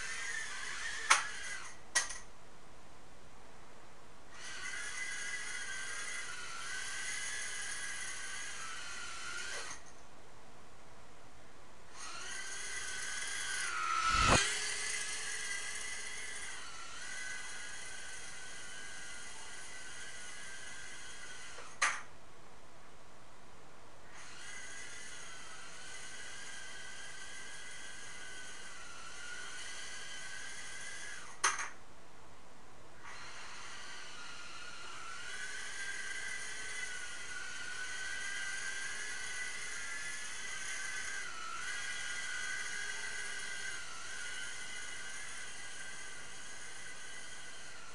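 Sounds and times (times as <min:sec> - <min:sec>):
quadcopter motors whining: 0:00.0 - 0:02.2, 0:04.3 - 0:09.9, 0:11.9 - 0:22.0, 0:24.1 - 0:31.7, 0:33.0 - 0:47.9
swish falling in pitch: 0:13.8 - 0:14.7.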